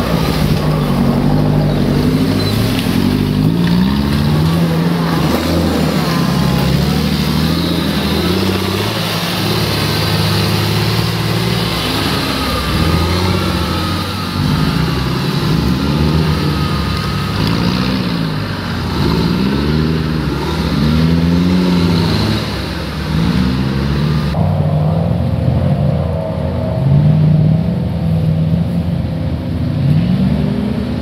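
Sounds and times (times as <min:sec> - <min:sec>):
truck engine revving: 0:00.0 - 0:31.0.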